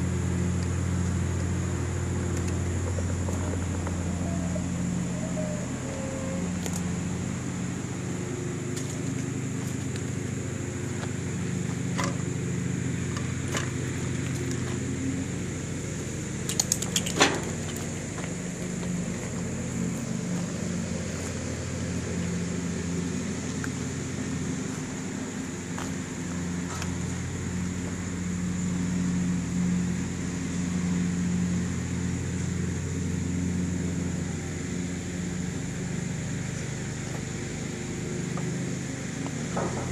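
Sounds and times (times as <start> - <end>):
car engine idling: 0.0 - 39.9
sharp clicks: 16.5 - 17.2.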